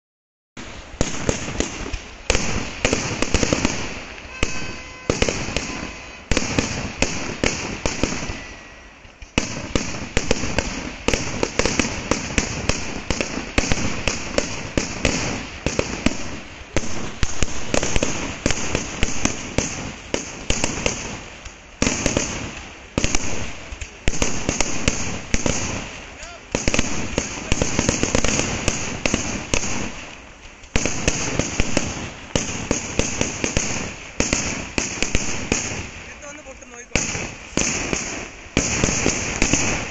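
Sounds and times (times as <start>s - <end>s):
fireworks explosions: 0.6s - 39.9s.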